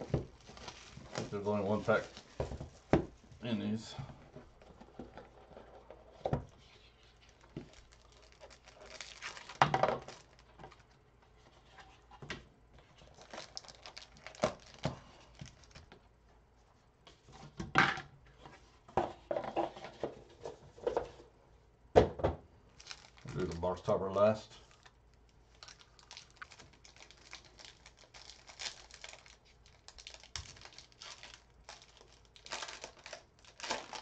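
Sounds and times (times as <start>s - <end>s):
packaging rustling and tearing: 0.0s - 2.9s, 7.0s - 11.0s, 13.0s - 15.9s, 22.8s - 23.8s, 24.6s - 34.0s.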